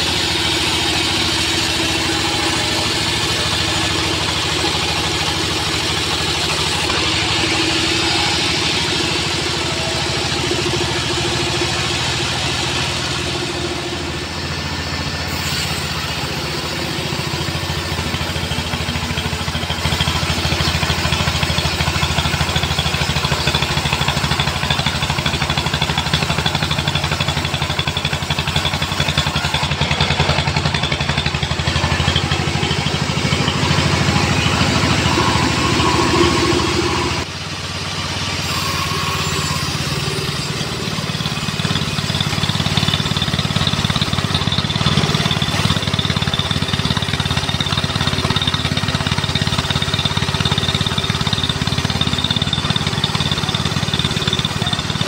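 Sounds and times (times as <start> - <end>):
bandsaw sawing through log: 0.0 - 13.0, 15.0 - 17.8
mill drive drone: 0.0 - 25.8, 26.4 - 46.7.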